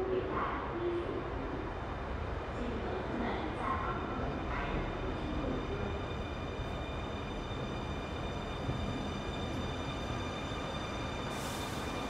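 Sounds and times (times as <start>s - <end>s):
train wheels rumbling on track: 3.4s - 12.0s.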